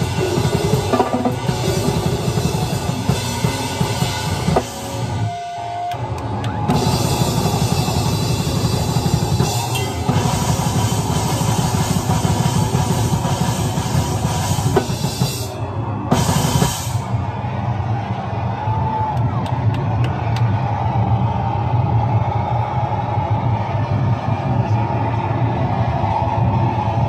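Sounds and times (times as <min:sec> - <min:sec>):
live rock music: 0:00.0 - 0:17.2
cymbals: 0:06.6 - 0:17.2.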